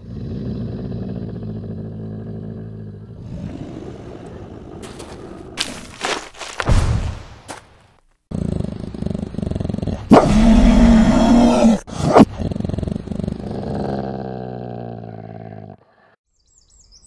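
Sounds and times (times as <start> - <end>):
monster growling and roaring: 8.3 - 15.8.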